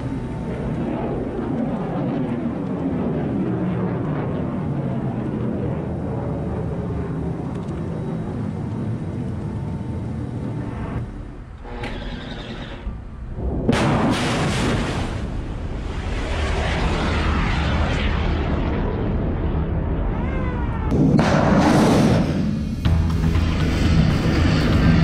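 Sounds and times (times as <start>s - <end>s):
low rumbling noise: 0.0s - 25.0s
rocket motor roaring: 8.4s - 15.3s.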